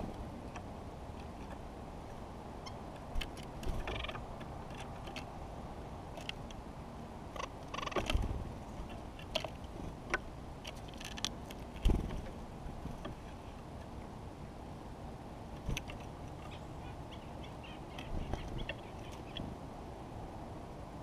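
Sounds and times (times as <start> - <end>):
bird feet and beaks tapping wood: 2.9 - 5.4, 6.1 - 6.6, 7.4 - 13.2, 15.6 - 16.6, 18.0 - 19.4.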